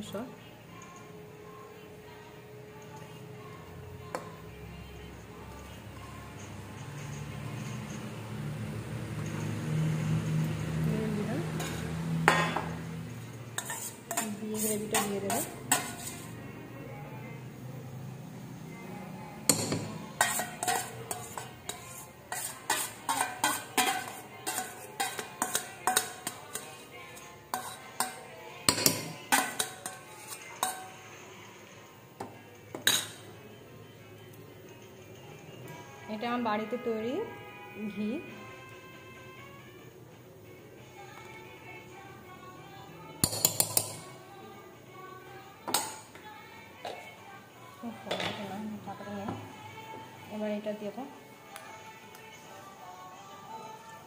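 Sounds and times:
spoon scraping metal bowl: 11.5s - 12.7s, 13.6s - 16.4s, 19.5s - 31.0s.

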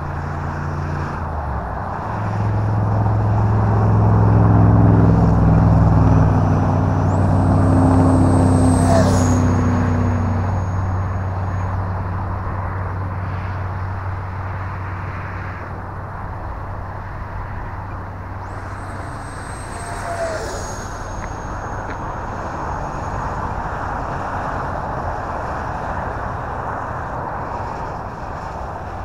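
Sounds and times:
high fan whine: 0.0s - 29.0s
model jet rushing roar: 2.3s - 11.8s, 18.2s - 29.0s
steady low rumble: 2.6s - 14.8s, 15.7s - 29.0s.

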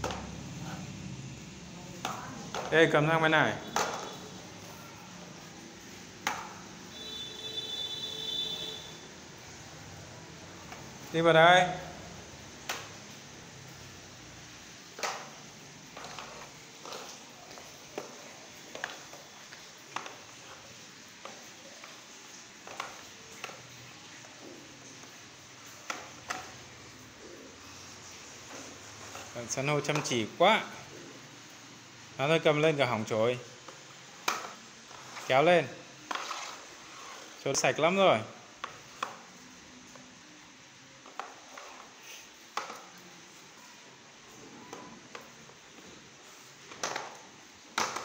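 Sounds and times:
broom sweeping stone steps: 34.8s - 35.4s, 36.0s - 37.4s.

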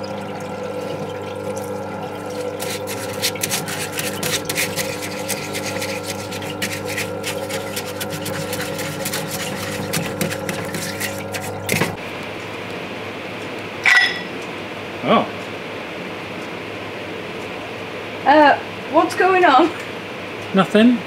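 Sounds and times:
pump humming: 0.0s - 15.2s
solvent running from hose: 0.8s - 12.0s
brush scrubbing metal: 2.2s - 12.0s.

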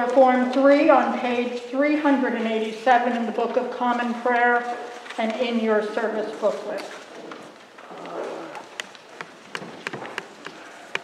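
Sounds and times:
low room noise: 0.0s - 11.0s
sharp clicks and taps: 8.0s - 11.0s.

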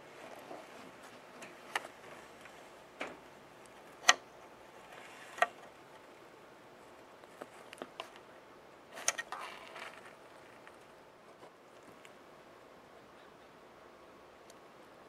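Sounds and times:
sharp clicks: 3.0s - 4.3s.

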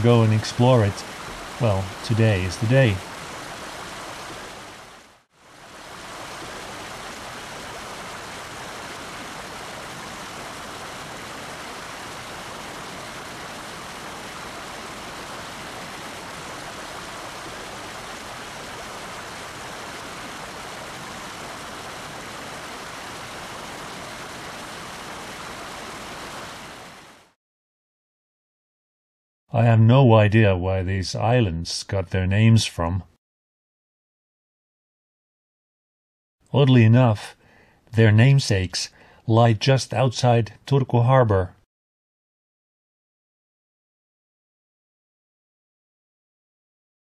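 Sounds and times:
water rushing: 0.0s - 27.4s.

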